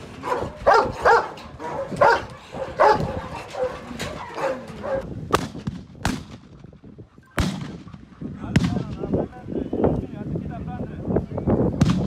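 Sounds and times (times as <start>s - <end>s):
dog barking: 0.2s - 5.1s.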